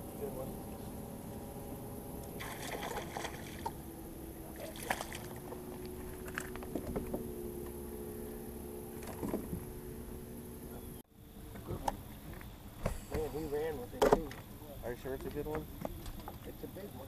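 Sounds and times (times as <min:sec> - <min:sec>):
boat motor hum: 0:00.0 - 0:17.0.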